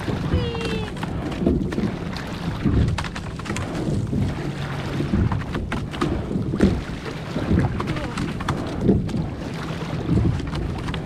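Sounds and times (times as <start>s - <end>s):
oar knocks and splashes: 0.0s - 11.0s
water rumble: 0.0s - 11.0s
wind on microphone: 0.0s - 11.0s.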